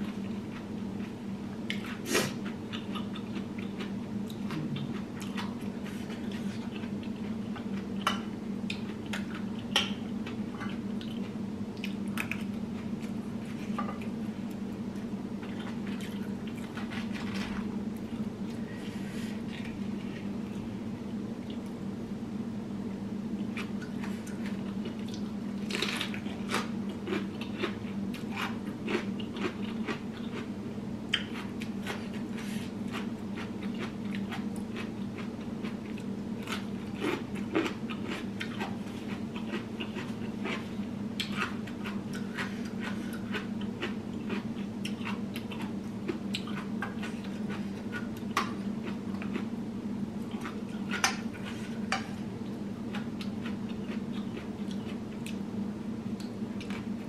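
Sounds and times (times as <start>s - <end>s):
person chewing: 0.0s - 14.6s, 23.4s - 30.5s, 31.1s - 49.6s, 50.2s - 52.1s, 52.9s - 55.4s, 56.2s - 56.9s.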